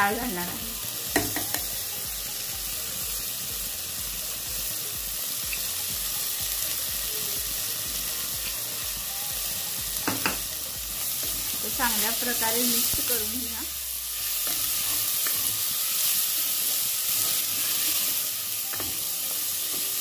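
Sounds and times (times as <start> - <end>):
lentils sizzling in hot oil: 0.0 - 20.0.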